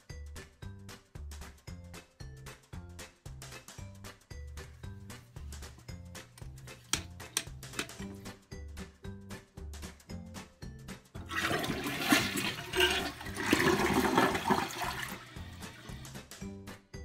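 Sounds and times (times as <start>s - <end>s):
background music with steady beat: 0.0s - 17.0s
toilet flushing: 11.2s - 16.2s.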